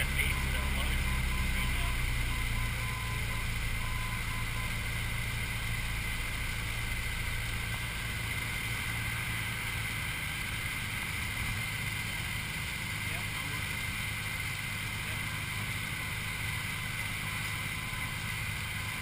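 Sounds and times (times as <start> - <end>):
faint beeping tone: 0.0 - 5.1, 15.1 - 19.0
light aircraft engine droning: 0.0 - 19.0.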